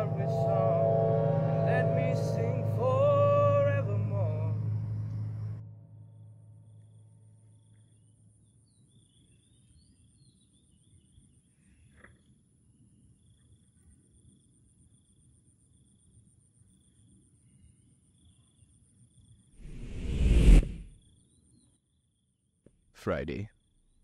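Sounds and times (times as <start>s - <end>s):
low rumble: 0.0s - 6.7s, 19.6s - 20.9s
high insect trill: 0.0s - 11.6s
loud whoosh: 19.6s - 20.9s.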